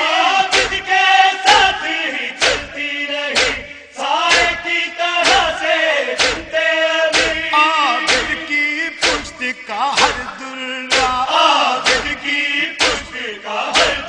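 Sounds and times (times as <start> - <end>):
men chanting: 0.0 - 14.0
chest-beating strikes: 0.5 - 0.9, 2.4 - 2.8, 3.4 - 5.6, 6.2 - 10.3, 10.9 - 13.2.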